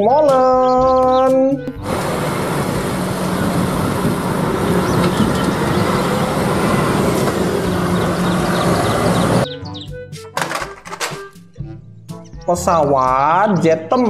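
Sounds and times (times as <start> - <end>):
road noise: 1.7 - 9.6
truck diesel engine passing: 1.8 - 9.5.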